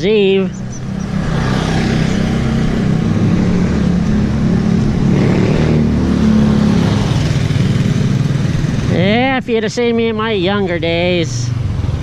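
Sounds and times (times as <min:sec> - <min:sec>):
small motorcycle engine drone: 0:00.2 - 0:09.4.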